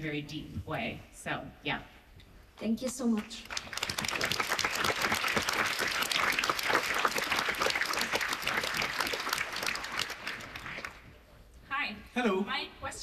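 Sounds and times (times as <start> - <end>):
audience applauding: 3.2 - 11.1.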